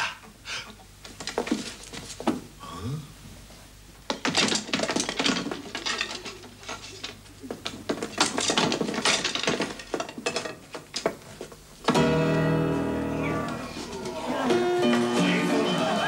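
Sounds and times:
clattering and clinking knocks: 4.1 - 12.2.

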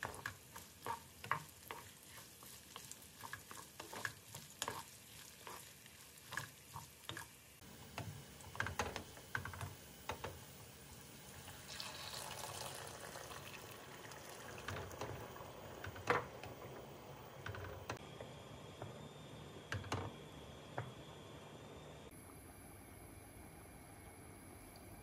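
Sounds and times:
wooden spoon stirring rice: 0.0 - 10.4
water pouring into a pot: 10.9 - 16.7.

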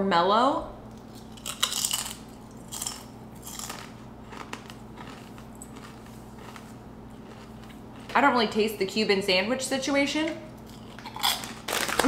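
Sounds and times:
potato chip crunching: 1.0 - 8.4, 10.6 - 12.0.

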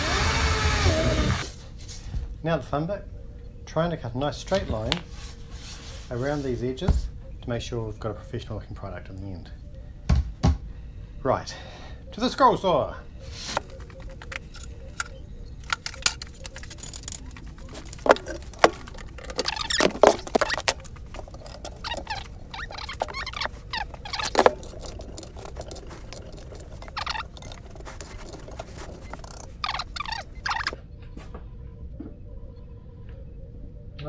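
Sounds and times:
wooden board shifting: 13.4 - 30.8
clicks and metallic rattles: 13.5 - 30.8.

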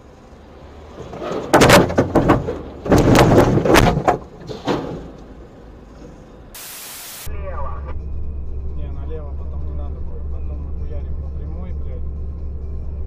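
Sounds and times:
car crash crunching and banging: 0.8 - 6.2
static hiss: 6.6 - 7.9.

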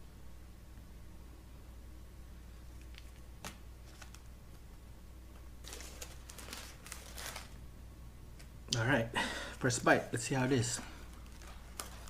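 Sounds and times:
paper wrapper rustling: 2.8 - 4.3, 5.6 - 7.6, 11.0 - 12.0.

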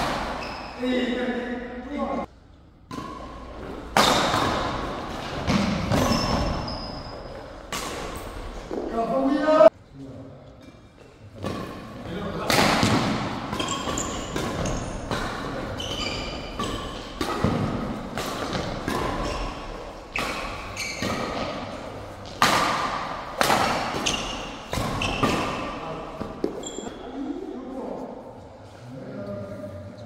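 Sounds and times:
shoes squeaking on court floor: 0.2 - 0.9, 3.2 - 9.0, 13.4 - 22.4, 23.6 - 27.2
rackets hitting shuttlecock: 2.8 - 8.8, 11.4 - 26.8.

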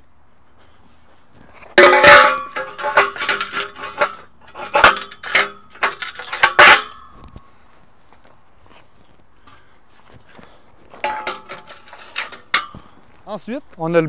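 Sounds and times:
metal tubes clanging on paving: 1.3 - 7.6, 9.4 - 13.4.

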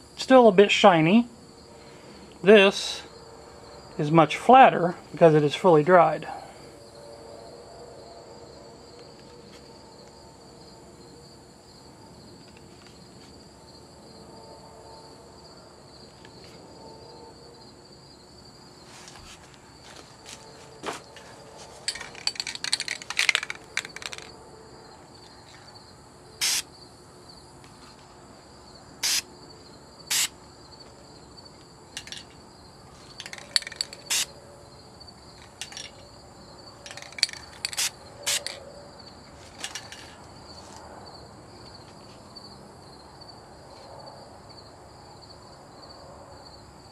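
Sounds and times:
insects chirring: 0.0 - 46.9
objects clicking and knocking: 21.8 - 24.3, 32.0 - 32.4, 33.0 - 34.2, 35.4 - 36.0, 36.8 - 38.6, 39.5 - 40.2.

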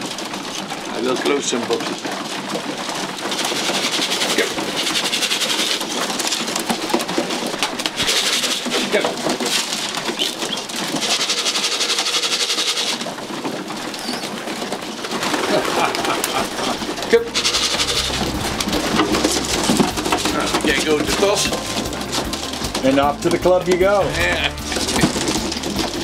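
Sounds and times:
pigeons cooing: 0.0 - 26.0.

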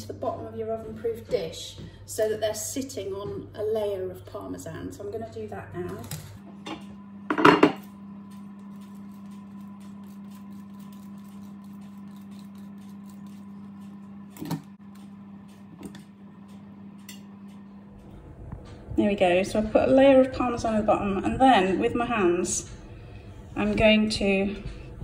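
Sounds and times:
steady low hum: 0.0 - 25.0
ceramic dish knocking on stone: 7.3 - 7.8
cheese grating on hand grater: 8.6 - 13.6.

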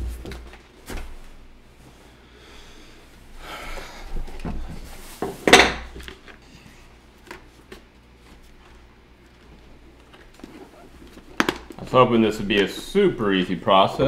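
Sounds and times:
padded helmet liner rustling: 6.9 - 13.0.

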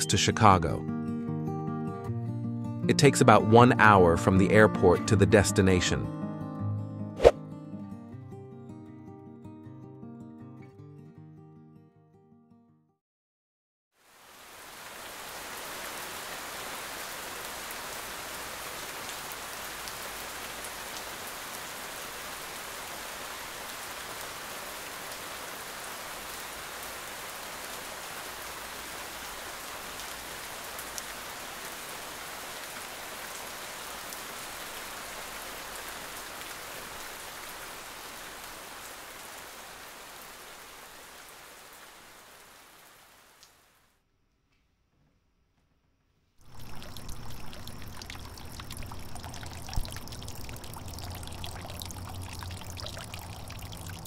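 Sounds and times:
steady rain hiss: 14.0 - 43.9, 46.4 - 54.0.

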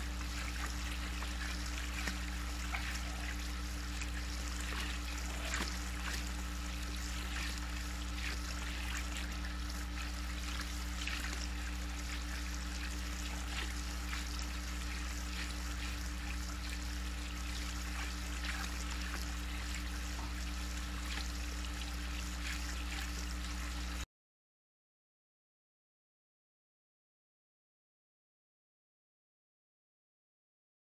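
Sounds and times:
low electrical hum: 0.0 - 24.0
water trickling: 0.0 - 24.0.

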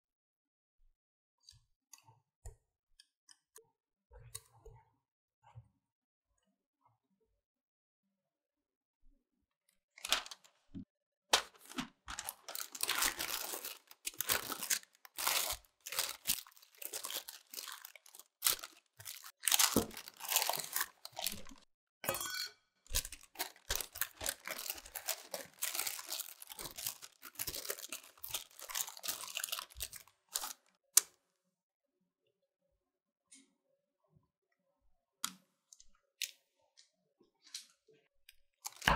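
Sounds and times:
parchment paper rustling: 10.0 - 21.6, 22.9 - 30.8.

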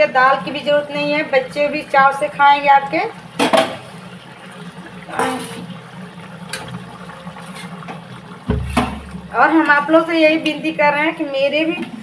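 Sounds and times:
gravy sloshing and splashing: 1.8 - 10.4
dull thump: 8.5 - 9.1.

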